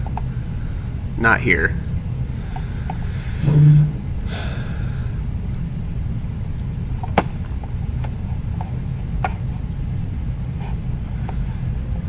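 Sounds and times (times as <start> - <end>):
low background hum: 0.0 - 12.0
person breathing: 2.3 - 5.2.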